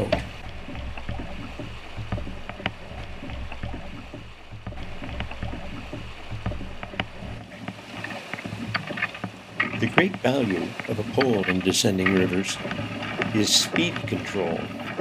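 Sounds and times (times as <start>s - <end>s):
light knocks: 0.0s - 10.2s
river water rushing and splashing: 0.0s - 15.0s.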